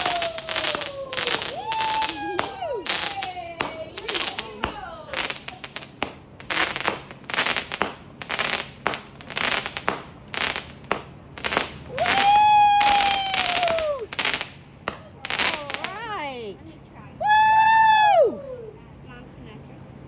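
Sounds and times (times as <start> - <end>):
long high whistling tone: 0.0 - 5.8, 11.4 - 14.4
fireworks bangs and crackling: 0.0 - 16.4.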